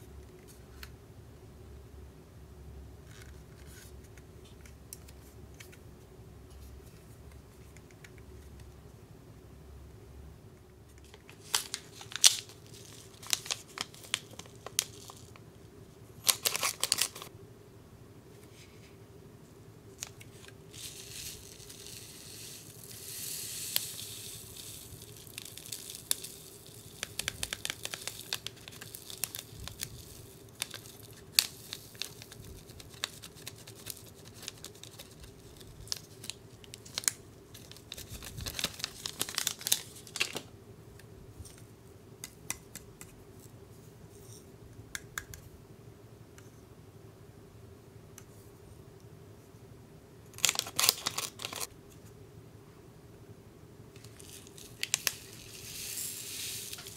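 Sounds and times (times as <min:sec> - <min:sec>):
foil packets crinkling and tearing: 0:11.1 - 0:15.4, 0:16.2 - 0:17.3, 0:23.7 - 0:40.5, 0:50.4 - 0:51.7, 0:54.0 - 0:56.9
powder pouring hiss: 0:20.7 - 0:35.3, 0:54.0 - 0:56.9.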